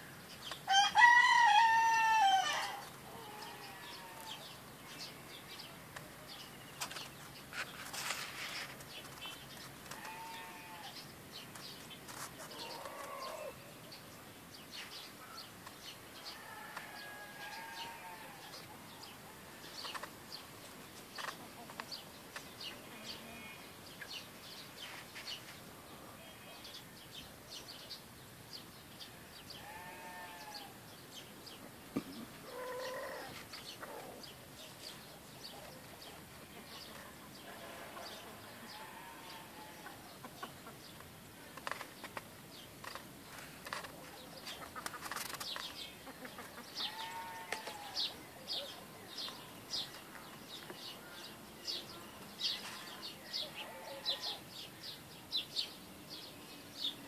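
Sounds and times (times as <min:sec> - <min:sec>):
small birds chirping: 0:00.0 - 0:00.9, 0:02.6 - 0:57.0
livestock calls: 0:00.7 - 0:04.5, 0:09.9 - 0:11.0, 0:12.4 - 0:13.6, 0:16.2 - 0:18.7, 0:29.5 - 0:30.8, 0:32.2 - 0:34.3, 0:37.4 - 0:40.8, 0:46.0 - 0:48.8, 0:52.6 - 0:54.5.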